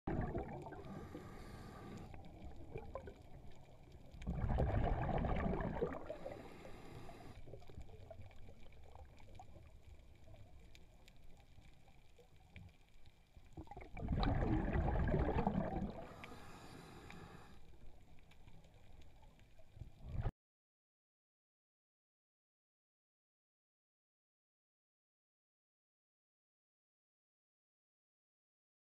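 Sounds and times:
exhaled air bubbling: 0:00.1 - 0:10.7, 0:13.4 - 0:16.6
underwater diver breathing: 0:00.6 - 0:02.4, 0:04.4 - 0:07.6, 0:15.7 - 0:17.8
faint regulator hiss: 0:00.8 - 0:02.5, 0:06.1 - 0:07.6, 0:16.0 - 0:19.3.

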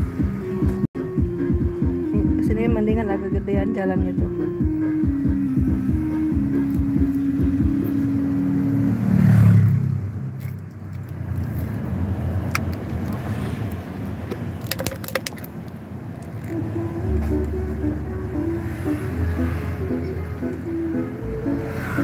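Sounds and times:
background music: 0:00.0 - 0:09.1, 0:16.4 - 0:22.0
road and wind noise: 0:00.0 - 0:22.0.

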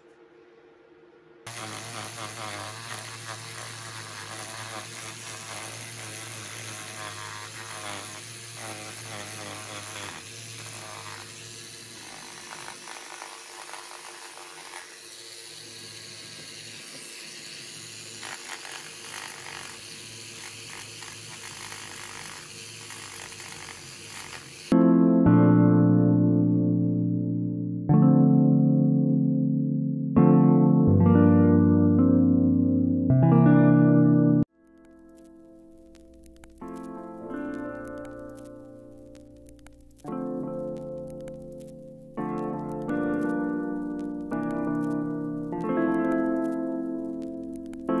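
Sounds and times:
bit sanding clay with grinding rasp: 0:01.5 - 0:24.7
rotary tool motor hum: 0:01.5 - 0:24.8.

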